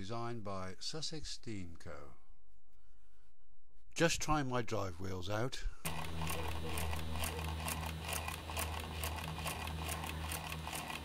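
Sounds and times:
steady low hum: 5.6 - 11.0.

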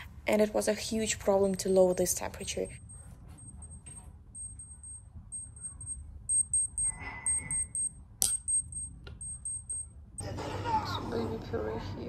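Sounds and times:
thermometer high-pitched beeps: 1.6 - 10.0.

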